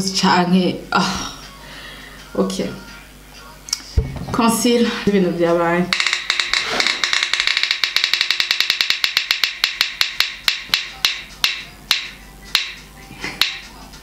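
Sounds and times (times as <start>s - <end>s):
spinning wheel ticking: 5.9s - 12.8s.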